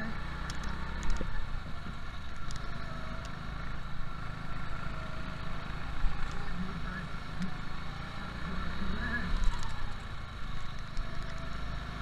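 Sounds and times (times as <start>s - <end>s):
go-kart engines racing: 0.0s - 12.0s.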